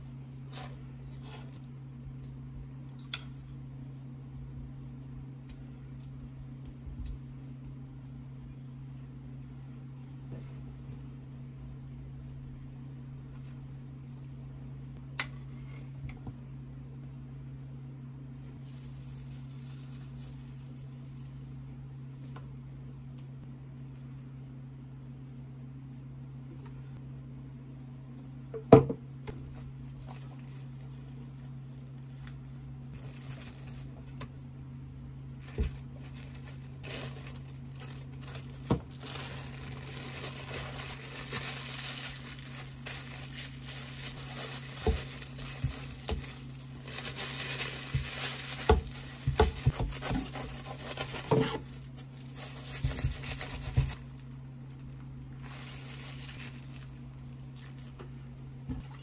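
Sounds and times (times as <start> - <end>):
steady low hum: 0.0 - 59.0
plastic wrap crinkling: 18.6 - 21.5, 29.8 - 34.2, 35.4 - 58.4.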